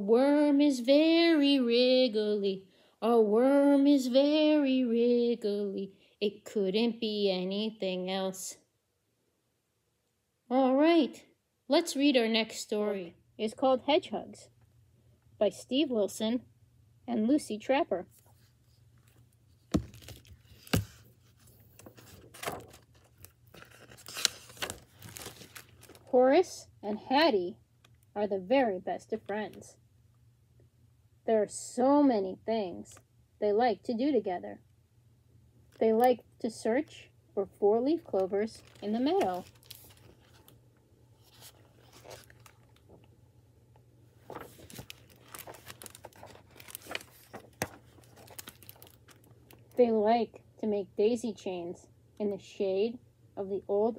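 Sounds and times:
crinkly plastic rustling: 0:18.2 - 0:26.2, 0:38.1 - 0:40.6, 0:41.2 - 0:43.1, 0:44.2 - 0:49.8
book handling knocks: 0:19.7 - 0:21.1.

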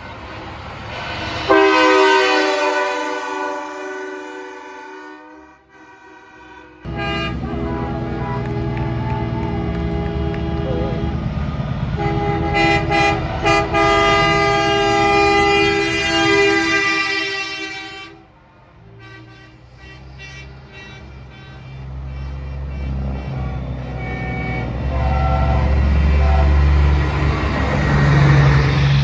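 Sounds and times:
truck air horn chord: 0:01.2 - 0:11.2, 0:12.0 - 0:29.0
diesel truck engines running: 0:05.9 - 0:29.0.

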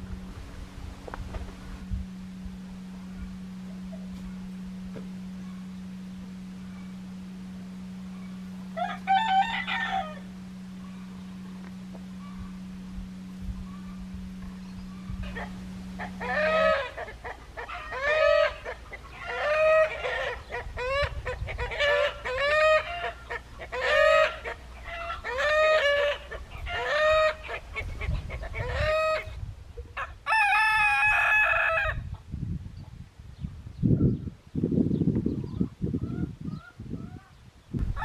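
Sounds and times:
chickens calling: 0:08.0 - 0:32.2.

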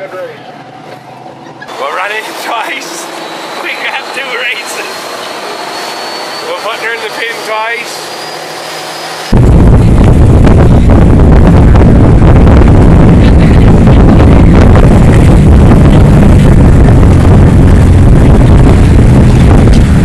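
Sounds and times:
boat engine at full throttle: 0:00.8 - 0:20.0
wind buffeting microphone: 0:09.3 - 0:20.0.

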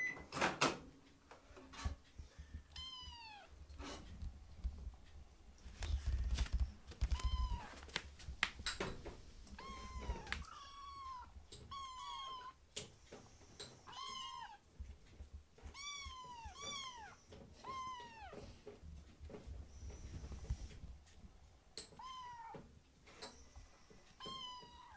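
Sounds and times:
kittens meowing: 0:09.5 - 0:12.6, 0:13.8 - 0:14.6, 0:15.7 - 0:18.6, 0:21.9 - 0:22.6, 0:24.2 - 0:24.9.

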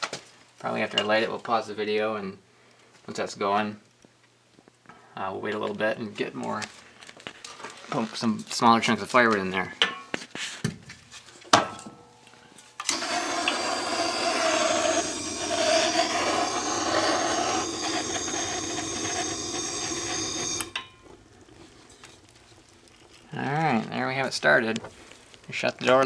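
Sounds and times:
gas torch burning: 0:12.8 - 0:26.0.

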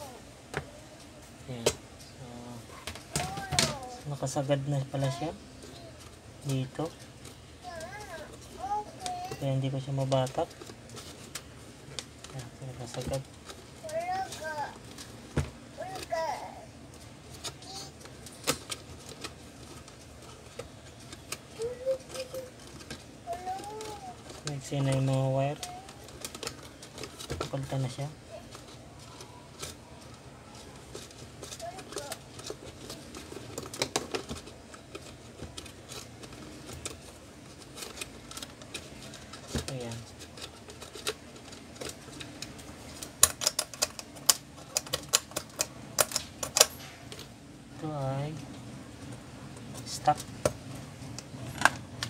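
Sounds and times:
dove cooing: 0:21.5 - 0:24.3.

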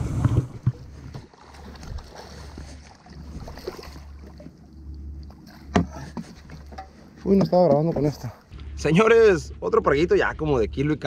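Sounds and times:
steady low rumble: 0:08.2 - 0:11.0.

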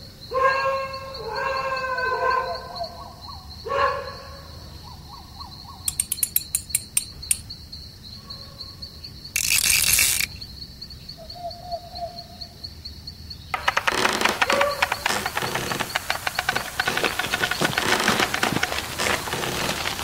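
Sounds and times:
cricket chirping: 0:00.0 - 0:20.0
sharp clicks: 0:05.8 - 0:07.5, 0:09.4 - 0:10.4, 0:13.6 - 0:20.0.

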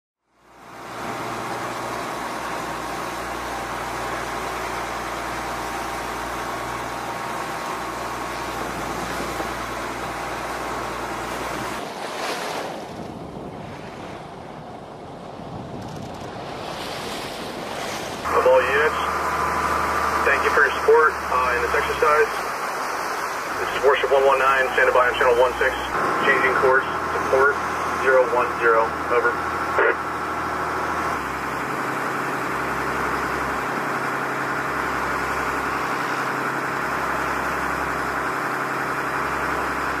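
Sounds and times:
boat engine humming: 0:00.2 - 0:40.0
wind: 0:00.2 - 0:40.0
choppy waves washing: 0:00.4 - 0:40.0
rushing water: 0:00.4 - 0:40.0
wind buffeting microphone: 0:11.5 - 0:18.2.

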